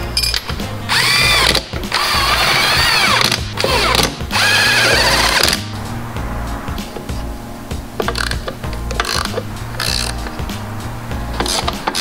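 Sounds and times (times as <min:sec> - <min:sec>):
music with steady beat: 0:00.0 - 0:12.0
cordless drill whining: 0:00.9 - 0:05.6.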